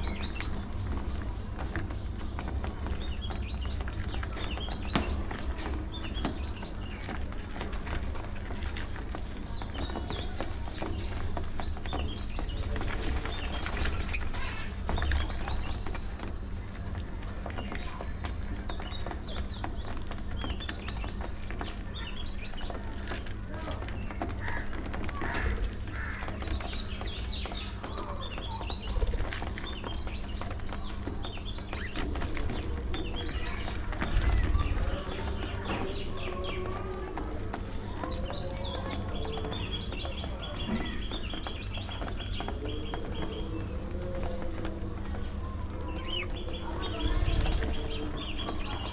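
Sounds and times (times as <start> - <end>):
budgerigars chattering: 9.0 - 18.9.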